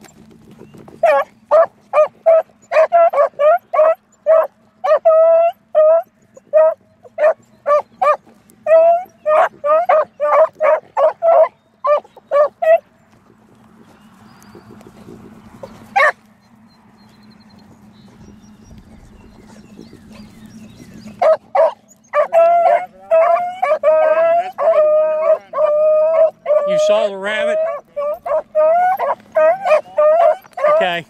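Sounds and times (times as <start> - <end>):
dogs baying: 0.0 - 31.0
dog yelp: 1.0 - 12.8, 15.6 - 16.2, 19.1 - 31.0.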